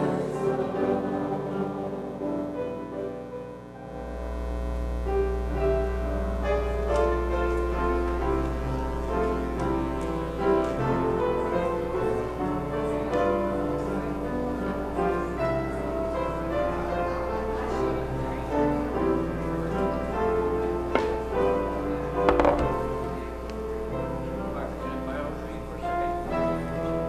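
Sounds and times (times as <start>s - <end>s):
steady low hum: 0.0s - 16.7s.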